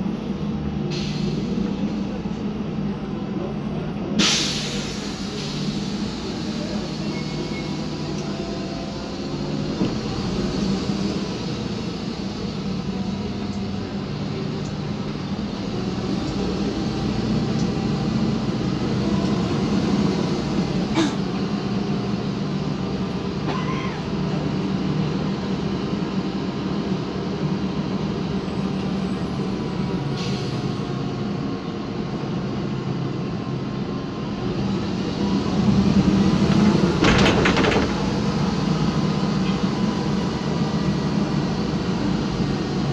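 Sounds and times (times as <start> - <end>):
bus engine droning: 0.0 - 42.9
bus body knocks: 36.5 - 38.2.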